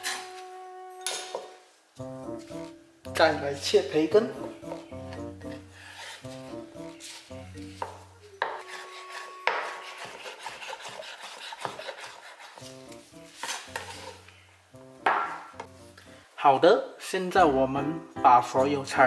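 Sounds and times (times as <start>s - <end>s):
soft background music: 0.0s - 10.9s, 12.5s - 19.0s
knife cutting on wooden board: 5.4s - 14.2s.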